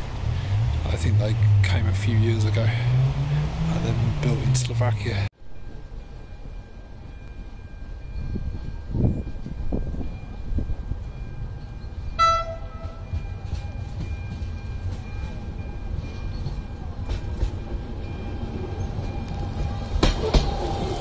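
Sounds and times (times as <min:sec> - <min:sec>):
train rumble with whine: 0:00.0 - 0:21.0
train horn toot: 0:12.2 - 0:13.2
train wheel clacks: 0:12.3 - 0:18.1, 0:18.9 - 0:21.0.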